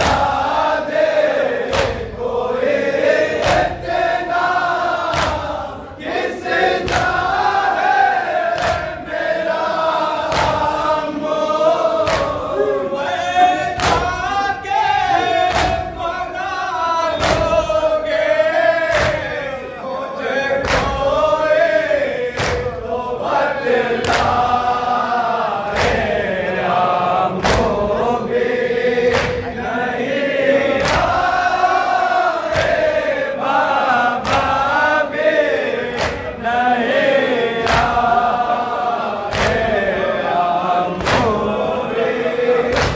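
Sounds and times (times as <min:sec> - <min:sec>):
chest-beating slaps: 0:00.0 - 0:11.0, 0:11.9 - 0:12.6, 0:13.7 - 0:14.4, 0:15.4 - 0:16.0, 0:17.1 - 0:18.2, 0:18.8 - 0:19.5, 0:20.6 - 0:21.2, 0:22.3 - 0:22.9, 0:24.0 - 0:24.7, 0:25.6 - 0:29.7, 0:30.7 - 0:33.2, 0:33.8 - 0:35.0, 0:35.8 - 0:36.4, 0:37.5 - 0:38.5, 0:39.2 - 0:41.7, 0:42.6 - 0:42.9
men chanting in unison: 0:00.0 - 0:42.9.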